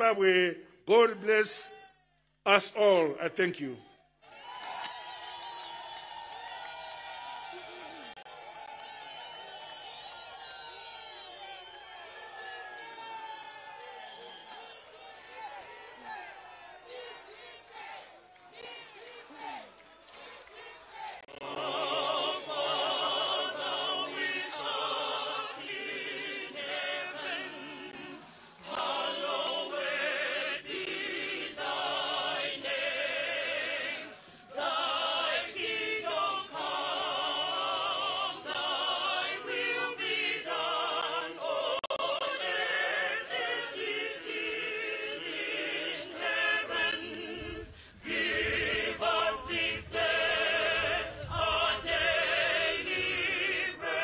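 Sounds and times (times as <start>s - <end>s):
choir singing: 14.3s - 54.0s.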